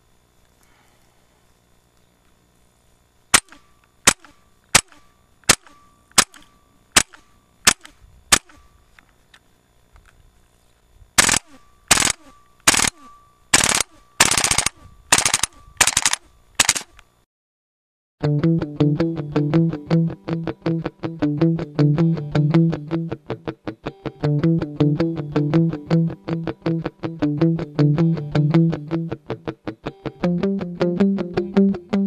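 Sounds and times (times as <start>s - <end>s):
airsoft rifle single shots: 3.3s - 8.7s, 11.2s - 17.0s
airsoft rifle full-auto bursts: 3.4s - 8.6s, 11.2s - 16.9s.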